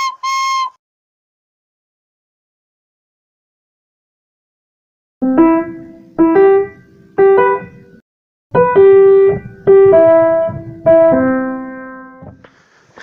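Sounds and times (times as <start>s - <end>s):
piano chords: 5.2s - 12.4s.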